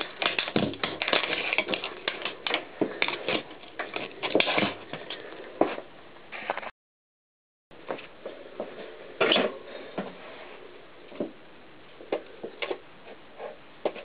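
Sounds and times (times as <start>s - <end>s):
plastic cassette cracking under tyre: 0.0s - 4.8s.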